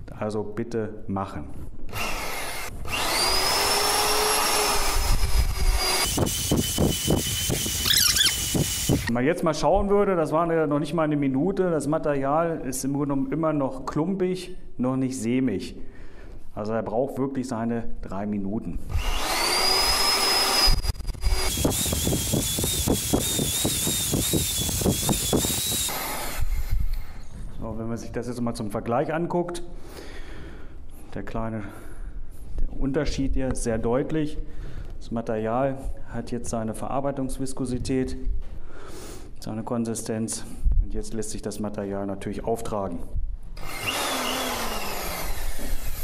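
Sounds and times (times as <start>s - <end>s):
paddle mixer motor whining: 2.2s - 9.1s, 19.0s - 26.7s.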